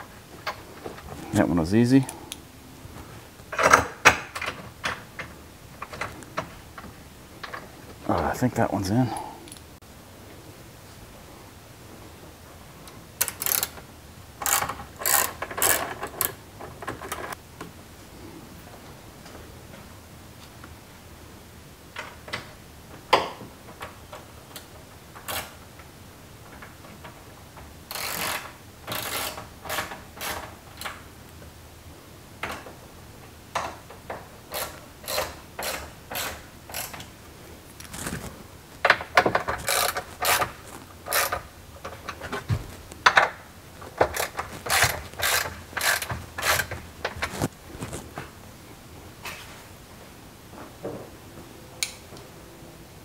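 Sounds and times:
ratchet wrench clicking: 13.2s - 13.7s, 14.4s - 15.9s, 27.9s - 30.4s, 34.5s - 37.0s, 41.1s - 41.4s, 44.1s - 46.7s.

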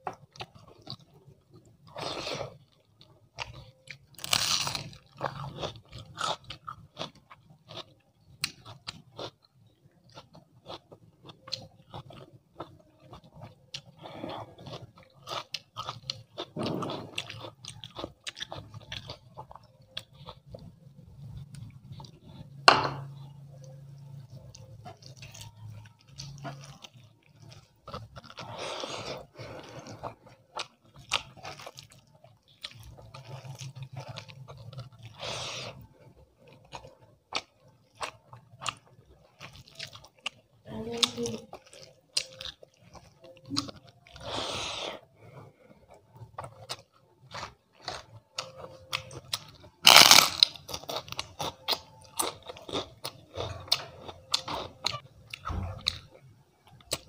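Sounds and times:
chewing with crunchy clicks: 0.0s - 22.6s, 23.2s - 57.0s
loud crunch of crisp bite: 4.1s - 6.6s, 48.9s - 55.0s.

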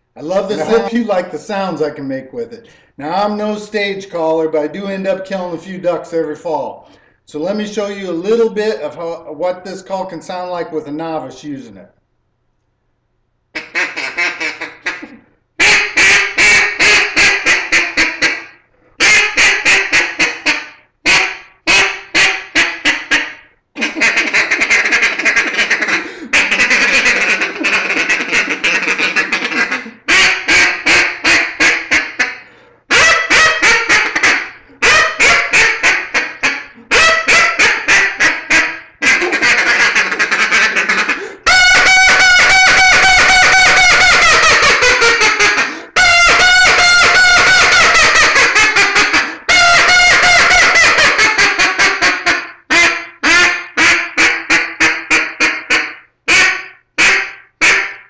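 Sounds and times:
duck call quacks: 0.3s - 1.1s, 13.6s - 58.0s.

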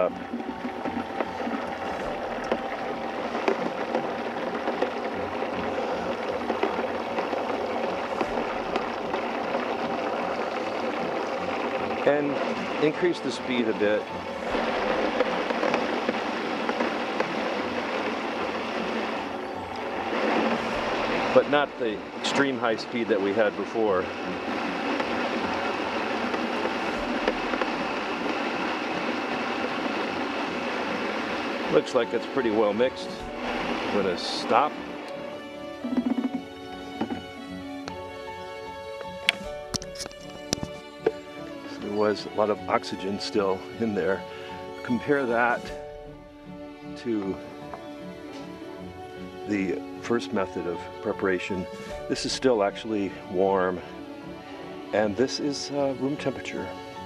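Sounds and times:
blender running: 0.0s - 42.2s.

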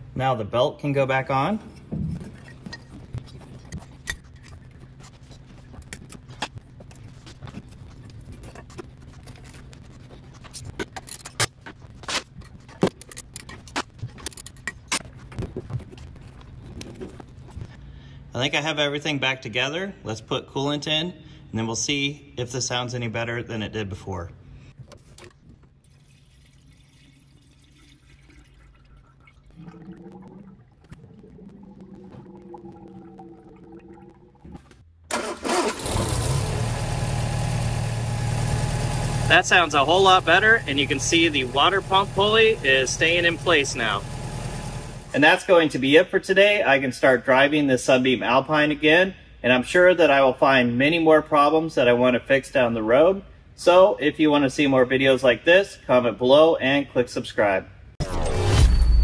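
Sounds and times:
liquid pouring: 25.8s - 34.8s
low hum: 28.8s - 35.1s.

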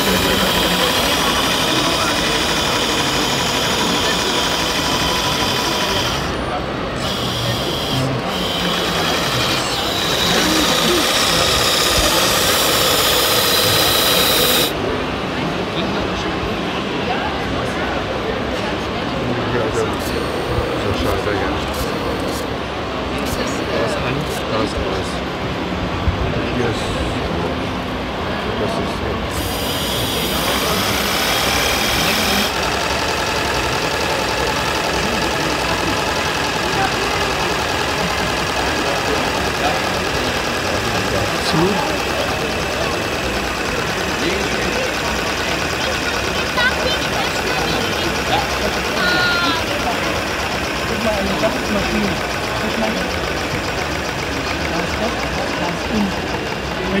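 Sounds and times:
high whine: 0.0s - 15.0s, 29.0s - 57.0s
model steam engine running: 0.0s - 57.0s.

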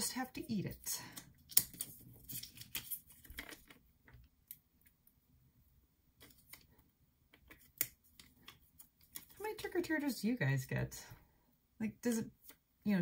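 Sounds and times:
card pieces clicking and rustling: 1.1s - 3.8s.

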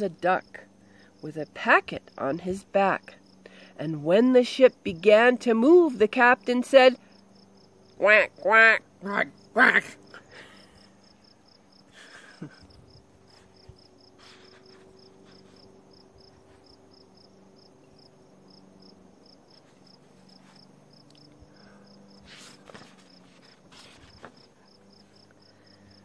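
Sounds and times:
cricket chirping: 0.0s - 5.7s, 6.3s - 26.0s
soft rustles of book handling: 22.2s - 25.2s.

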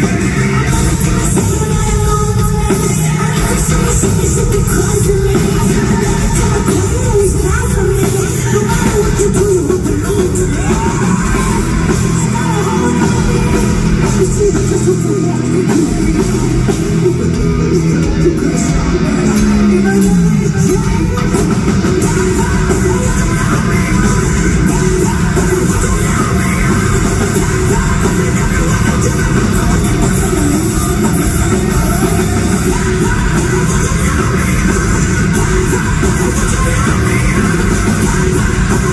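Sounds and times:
heavy metal band playing live: 0.0s - 38.9s.

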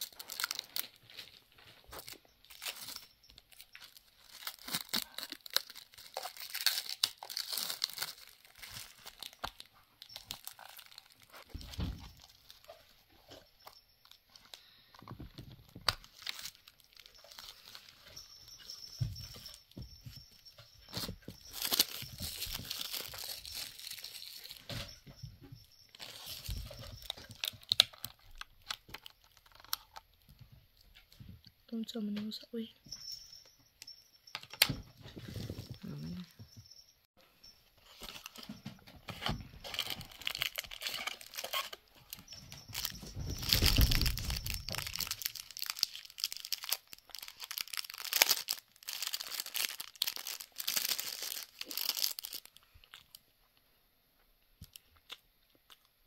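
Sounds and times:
plastic wrap crinkling: 0.0s - 30.9s, 37.8s - 53.2s
sharp plastic crackles and clicks: 26.0s - 30.4s.

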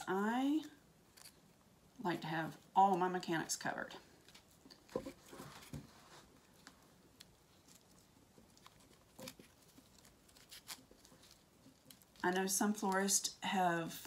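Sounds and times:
tape crinkling and clicking: 1.1s - 1.6s, 4.2s - 13.1s.

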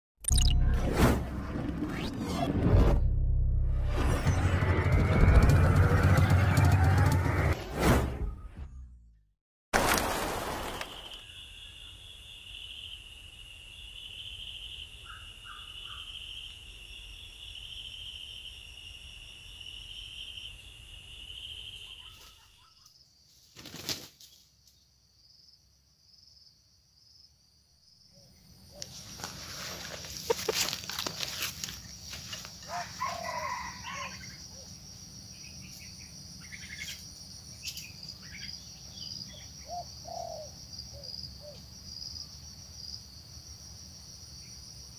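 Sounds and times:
rustling: 28.8s - 32.6s.

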